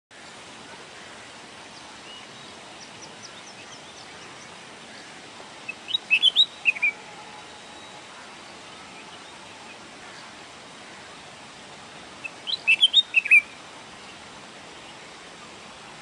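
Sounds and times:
steady hiss: 0.1s - 16.0s
bird singing: 1.7s - 10.4s, 12.2s - 14.2s.

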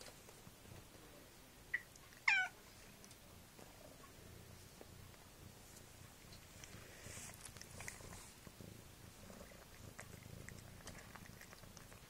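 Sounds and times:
cat chewing food: 5.8s - 12.0s.

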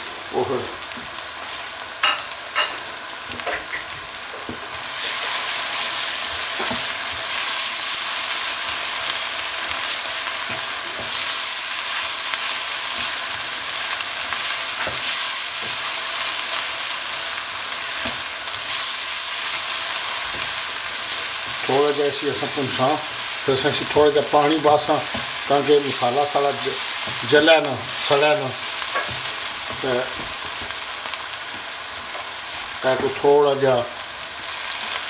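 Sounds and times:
spices sizzling in hot oil: 0.0s - 35.0s
spatula stirring in pan: 22.4s - 32.8s.

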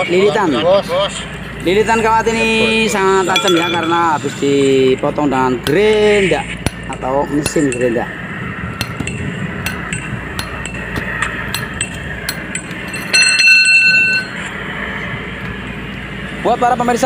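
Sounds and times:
steel bar ringing on concrete: 3.2s - 4.4s, 5.6s - 8.1s, 8.8s - 14.5s
metallic clinks of wire rope: 8.8s - 14.4s.

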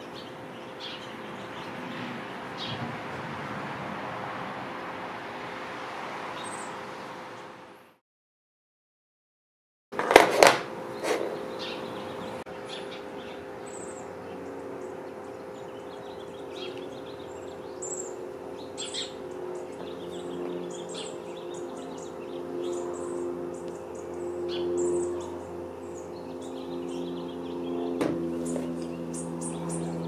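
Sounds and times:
small birds chirping: 0.0s - 2.9s, 6.4s - 7.5s, 10.9s - 30.0s
steady low hum: 10.0s - 30.0s.

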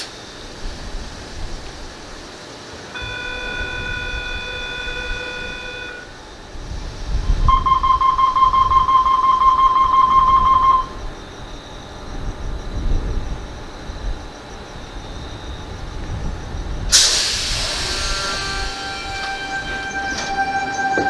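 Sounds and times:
low rumble of standing train: 0.0s - 21.0s
steady multi-pitch warning tone: 2.8s - 21.0s
rapid pulsing beep: 7.5s - 10.9s.

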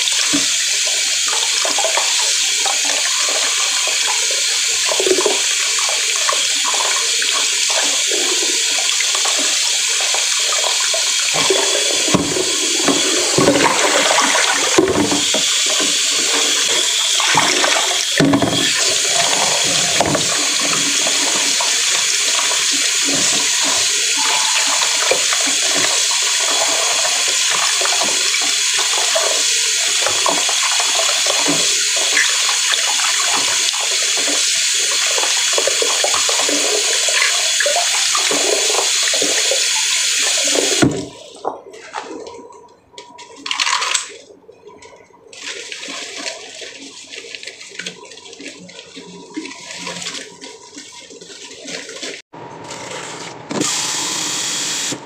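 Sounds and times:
tap running into metal sink: 10.5s - 26.6s.

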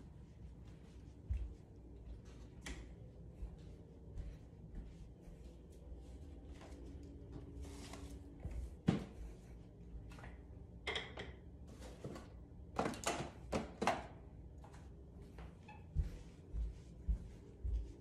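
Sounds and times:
objects knocking and clattering: 10.8s - 11.5s.

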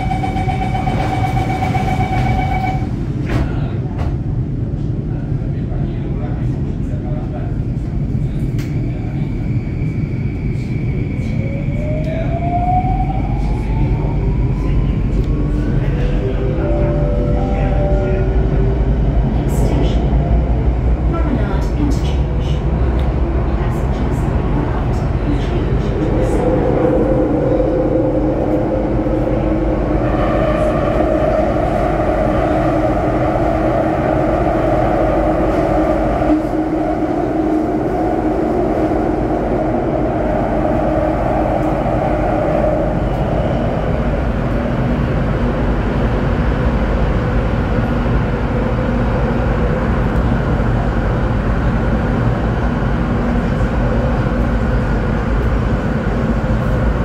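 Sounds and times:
metro train rumble with motor whine: 0.0s - 57.0s.

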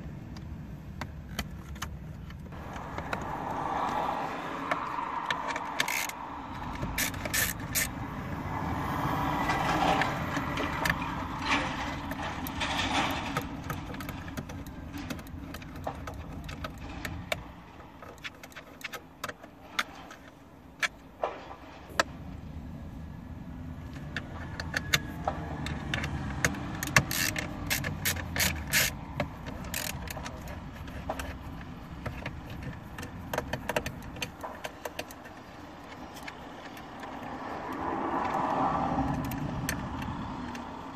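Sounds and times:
nut driver clicking on bolts: 4.6s - 8.0s, 24.0s - 40.7s.

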